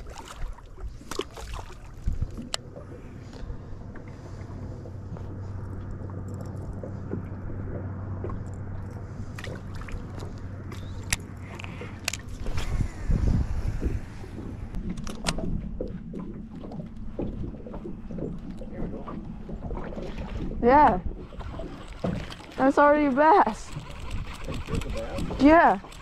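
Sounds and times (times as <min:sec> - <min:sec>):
electric motor humming: 0:21.2 - 0:26.0.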